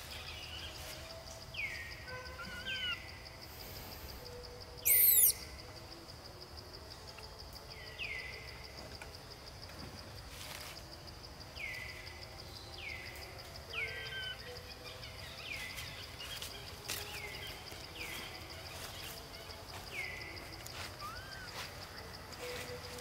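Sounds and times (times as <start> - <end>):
insect buzzing: 2.5 - 6.0
bird falling call: 4.8 - 5.4.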